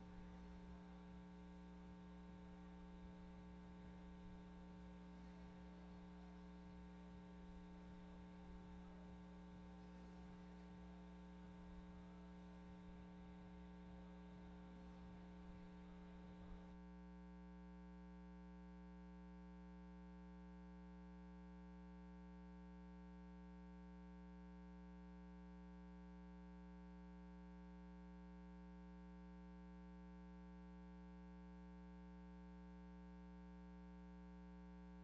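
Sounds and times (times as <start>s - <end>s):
electrical mains hum: 0.0s - 16.8s.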